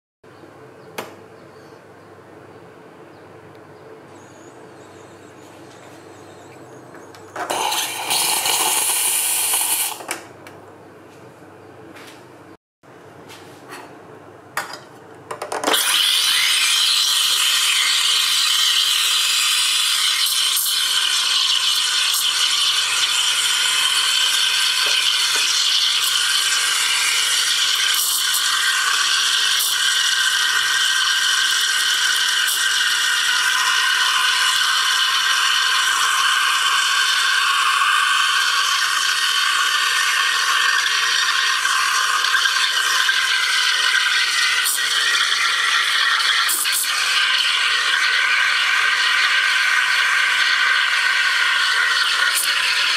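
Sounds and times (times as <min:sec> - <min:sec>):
steam wand hissing in milk: 0:07.4 - 0:10.0, 0:15.7 - 0:52.9
steam wand sputtering: 0:07.4 - 0:10.1.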